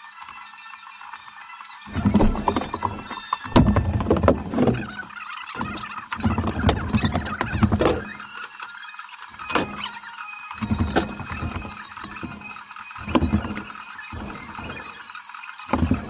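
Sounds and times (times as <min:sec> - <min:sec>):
high squeaky sounds: 0:01.9 - 0:08.4.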